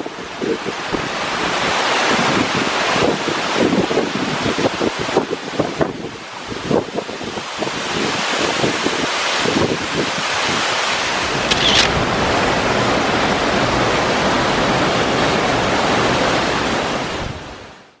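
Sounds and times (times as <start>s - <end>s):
waterfall rushing over rocks: 7.4s - 17.8s.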